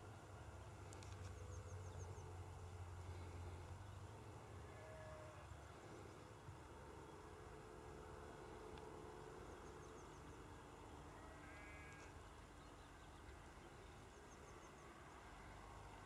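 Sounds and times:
distant animal call: 4.6 - 5.5, 11.1 - 12.2.

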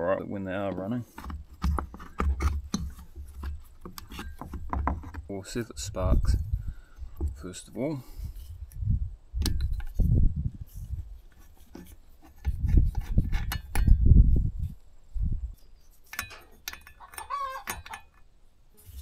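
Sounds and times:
low thuds and rubbing: 0.8 - 15.5
hen clucking: 17.0 - 17.9.

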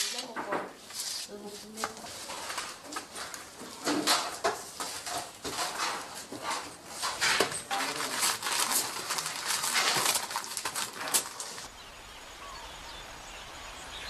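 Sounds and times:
dry biscuits clicking and clattering: 1.8 - 11.7.

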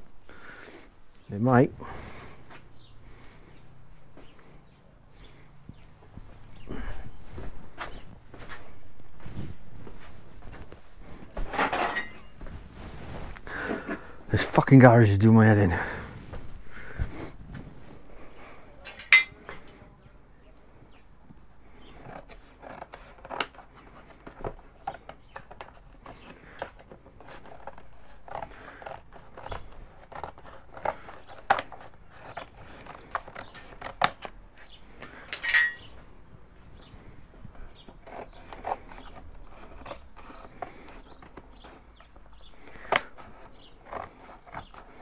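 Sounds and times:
cardboard scraping and squeaking: 5.7 - 14.1, 21.7 - 35.0, 36.8 - 45.0
scissors snipping cardboard: 22.0 - 34.4, 37.8 - 45.0
cardboard crinkling: 22.1 - 35.0, 37.5 - 45.0.

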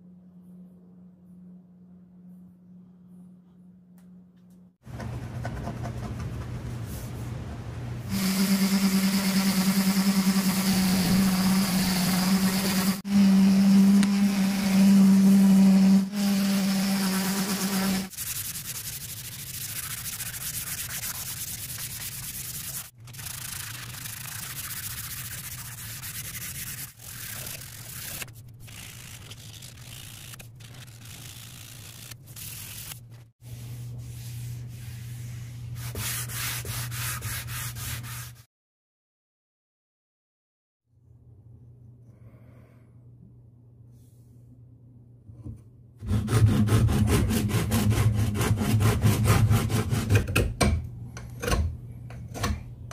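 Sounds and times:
electric sander humming: 8.1 - 18.1
sandpaper rubbed by hand: 8.1 - 38.5.

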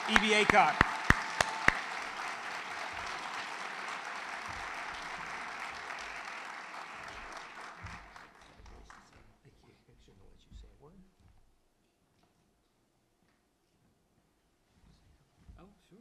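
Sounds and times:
loud single clap close by: 0.0 - 2.0
audience applauding: 0.0 - 9.2.

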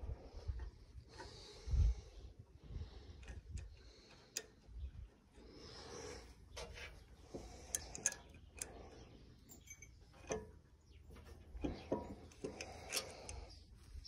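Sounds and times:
sharp metallic clicks and clinks: 7.4 - 10.5.

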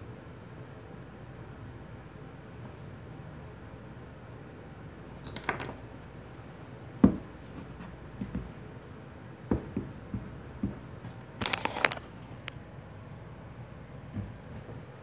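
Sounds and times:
handling knocks and bumps: 7.0 - 8.6, 9.4 - 11.2, 14.0 - 14.9.

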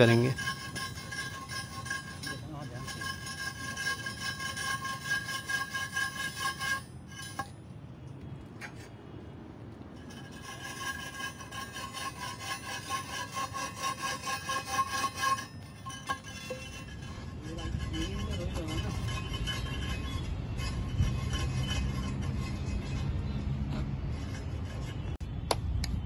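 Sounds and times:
rhythmic scraping on rail: 0.0 - 7.7, 9.8 - 25.3.

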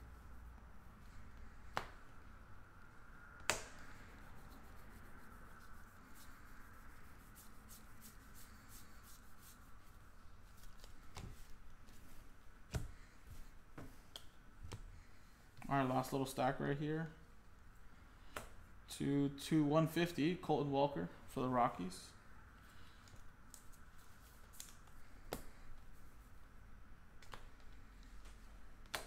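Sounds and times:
faint steady hum: 0.0 - 29.0
trading cards being flipped: 23.5 - 25.5.

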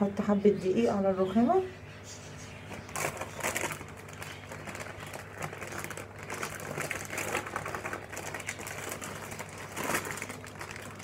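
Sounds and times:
plastic bag crinkling: 2.7 - 11.0.

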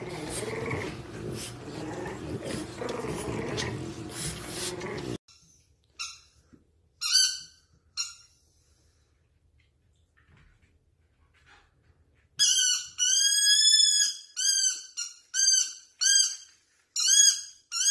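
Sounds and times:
dog growling and snuffling: 0.0 - 5.2
high-pitched squeaks: 12.4 - 17.9.

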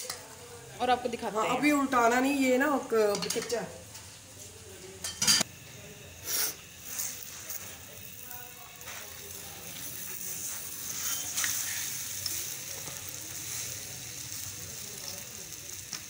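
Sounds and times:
flatbread sizzling on a griddle: 0.0 - 16.0
spatula scraping a griddle: 9.8 - 13.7.

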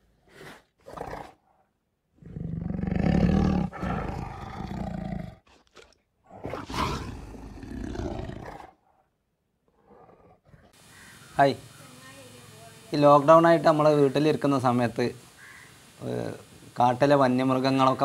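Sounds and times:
tiger roaring: 2.2 - 5.5, 6.3 - 9.0, 9.7 - 10.8.

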